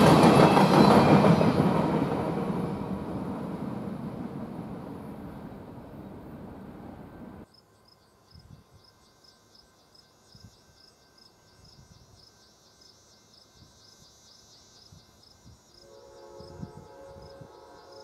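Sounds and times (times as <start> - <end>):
insects chirping: 0.2 - 18.0
distant locomotive air horn: 15.8 - 18.0.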